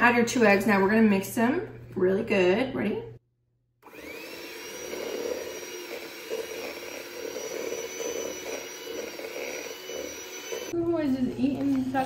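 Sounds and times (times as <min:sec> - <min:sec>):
electric hand mixer whirring: 0:03.8 - 0:10.8.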